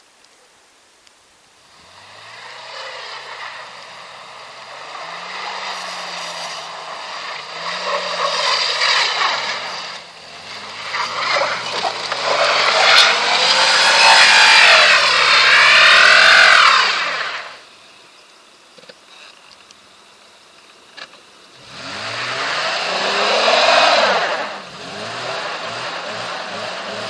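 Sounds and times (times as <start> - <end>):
car engine revving hard: 1.6 - 17.6, 21.6 - 27.0
wheels spinning in snow: 1.6 - 17.7, 21.6 - 27.0.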